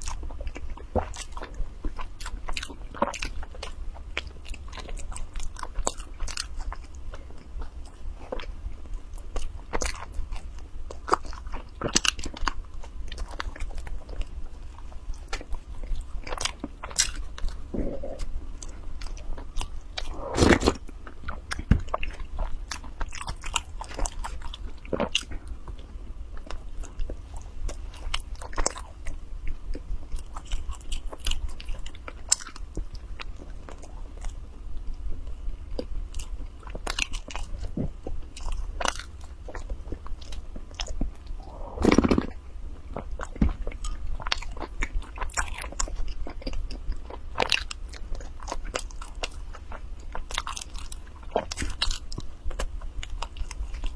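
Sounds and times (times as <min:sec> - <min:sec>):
chewing mouth sounds: 0:00.0 - 0:08.5, 0:09.2 - 0:34.5, 0:35.2 - 0:53.9
person gulping a drink: 0:20.0 - 0:20.9, 0:41.3 - 0:42.4.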